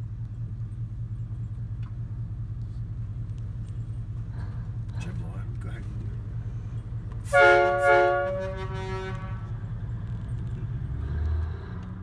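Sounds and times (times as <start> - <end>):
low engine rumble: 0.0 - 12.0
multi-tone air horn: 7.3 - 9.5.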